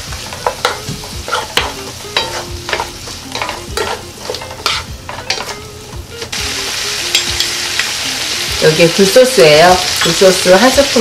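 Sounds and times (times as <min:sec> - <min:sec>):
food sizzling in a pan: 0:00.0 - 0:11.0
wooden spoons scraping a pan: 0:00.3 - 0:05.6.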